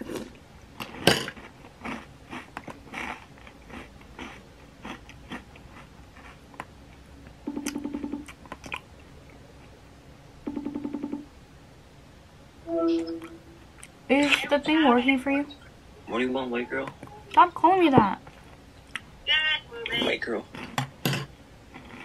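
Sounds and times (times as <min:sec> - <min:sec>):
person chewing crunchy food: 0:00.0 - 0:09.7, 0:20.5 - 0:21.1, 0:21.7 - 0:22.0.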